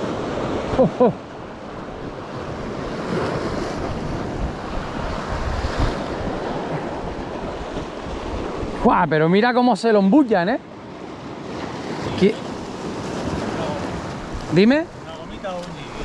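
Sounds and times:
surf washing over rocks: 0:00.0 - 0:16.0
wind buffeting microphone: 0:01.7 - 0:09.1, 0:11.5 - 0:16.0.

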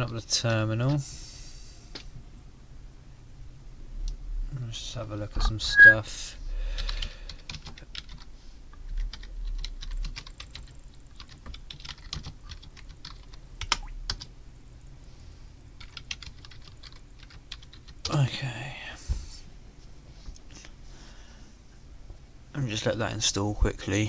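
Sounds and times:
typing on computer keyboard: 0:06.8 - 0:08.3, 0:09.0 - 0:14.3, 0:15.8 - 0:18.1.

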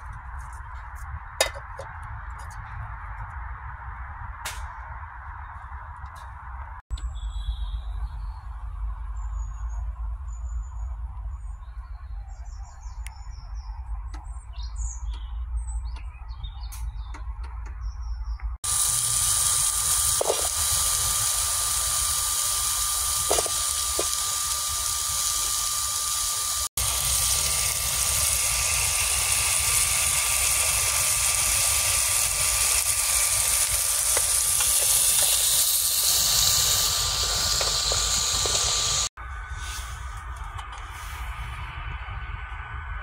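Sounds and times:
fan-fed fire hissing and rumbling: 0:00.0 - 0:06.8, 0:18.6 - 0:43.0
fan motor whine: 0:18.6 - 0:43.0.

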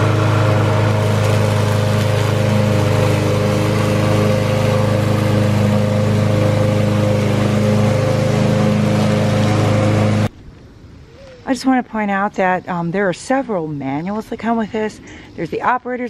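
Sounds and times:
lawn mower engine running: 0:00.0 - 0:10.3.

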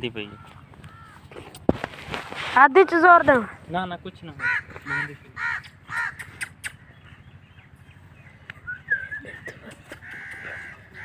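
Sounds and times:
animal calls: 0:04.3 - 0:07.2, 0:08.6 - 0:11.0.

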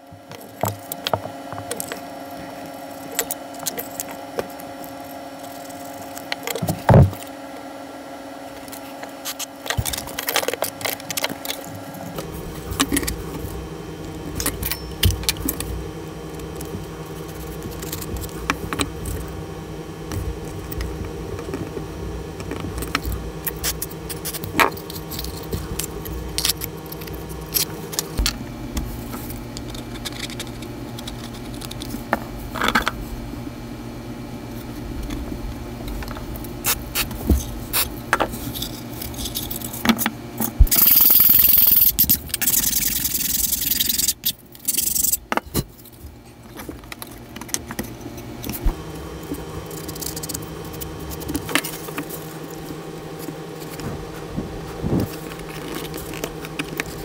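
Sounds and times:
low hum of held tones: 0:00.0 - 0:57.0
wood parts tapping and scraping: 0:00.2 - 0:05.0.

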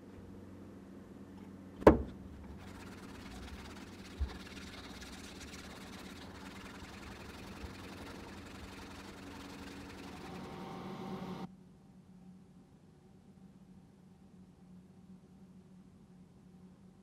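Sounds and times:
faint low hum: 0:00.0 - 0:17.0
brush scrubbing metal blade: 0:02.4 - 0:10.6.

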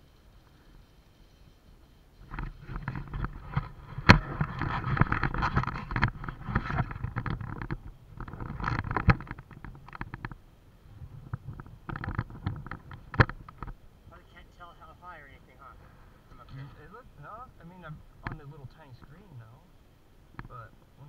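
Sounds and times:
bike frame and chain clattering: 0:00.0 - 0:10.4.

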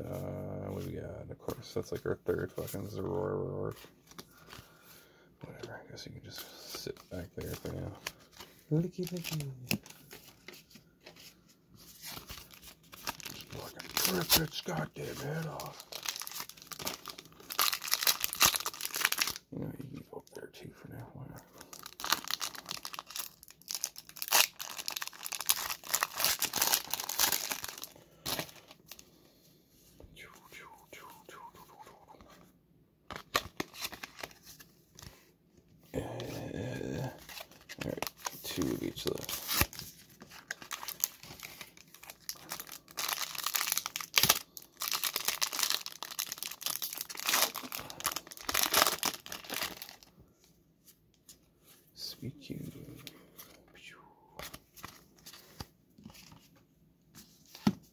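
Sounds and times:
foil wrapper tearing and crinkling: 0:12.0 - 0:19.4, 0:21.6 - 0:28.7, 0:36.9 - 0:50.1.

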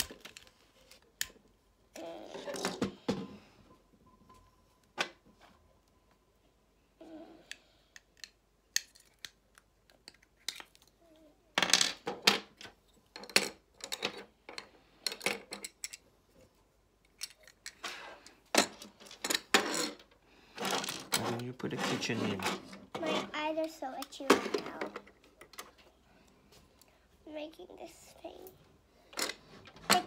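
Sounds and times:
plastic toy parts clicking: 0:07.5 - 0:11.0, 0:17.0 - 0:17.8.

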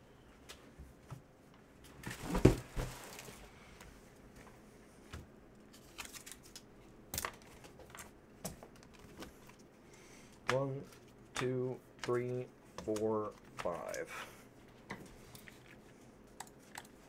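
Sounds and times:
plastic packaging crinkling: 0:02.7 - 0:03.5, 0:05.7 - 0:06.6.

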